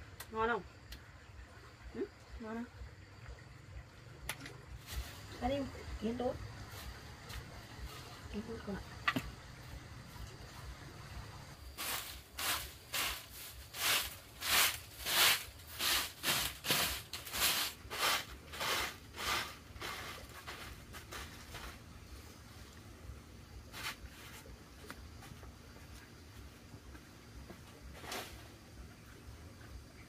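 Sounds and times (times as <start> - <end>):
broom sweeping earth floor: 4.7 - 9.7, 11.6 - 22.8, 23.5 - 26.6, 27.5 - 28.8.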